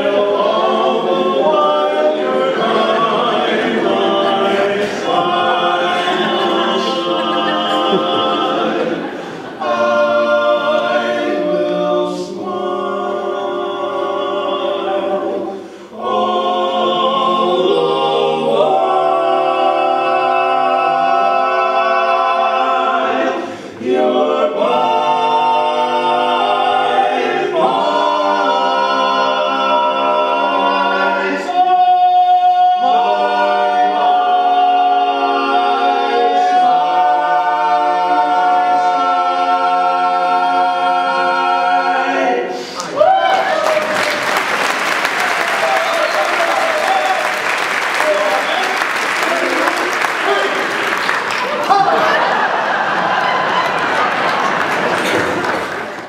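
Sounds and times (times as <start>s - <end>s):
men singing in harmony: 0.0s - 42.8s.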